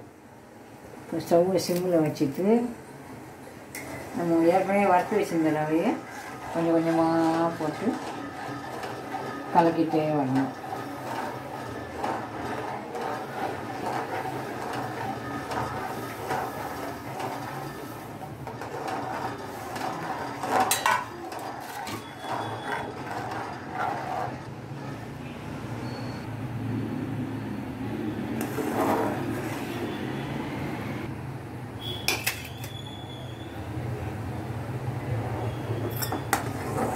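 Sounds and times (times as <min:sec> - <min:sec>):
metal ladle scraping and stirring: 0:03.8 - 0:25.1, 0:28.4 - 0:30.0, 0:31.9 - 0:32.8, 0:35.4 - 0:36.9.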